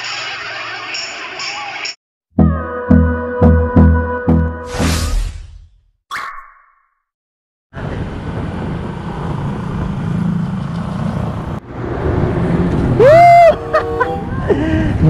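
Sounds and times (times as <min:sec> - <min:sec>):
short swoosh: 0:04.6 - 0:05.8
passing traffic: 0:07.8 - 0:15.0
wind and road rumble: 0:07.8 - 0:15.0.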